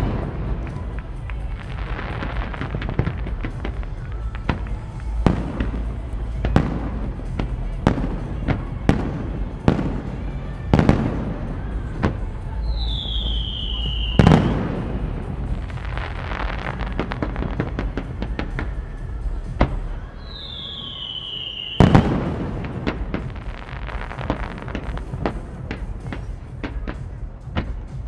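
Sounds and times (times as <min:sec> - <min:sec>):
crackling fireworks stars: 0:00.0 - 0:28.0
fireworks heavy bangs: 0:00.0 - 0:28.0
sharp firework report: 0:00.0 - 0:28.0
falling firework whistle: 0:12.6 - 0:14.8, 0:20.2 - 0:22.4.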